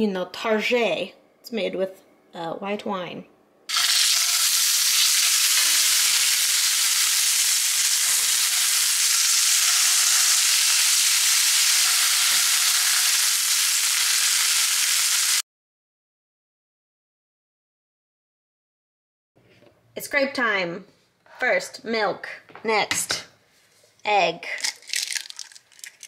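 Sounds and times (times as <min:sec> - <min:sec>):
meat sizzling in a skillet: 0:03.7 - 0:15.4.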